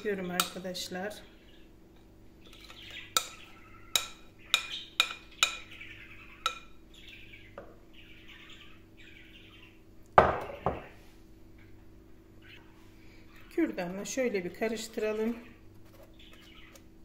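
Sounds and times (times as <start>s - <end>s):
metal spoon tapping glass bowl: 3.9s - 5.6s
glass bowl set down on countertop: 10.2s - 10.9s.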